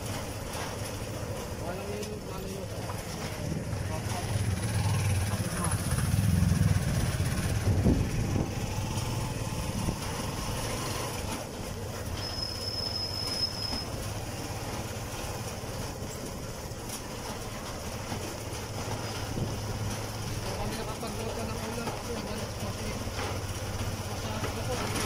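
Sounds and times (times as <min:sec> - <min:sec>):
motorcycle engine running: 0:02.5 - 0:12.1.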